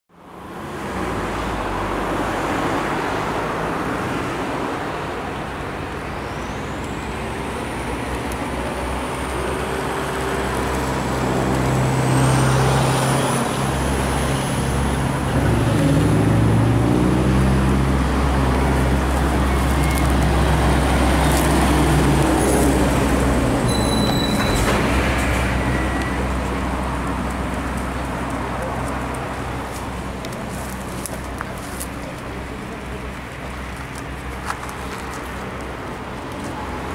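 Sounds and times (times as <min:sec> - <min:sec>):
traffic noise: 0:00.1 - 0:36.9
heavy vehicle engine humming: 0:00.2 - 0:36.9
thin high whine: 0:23.7 - 0:26.1.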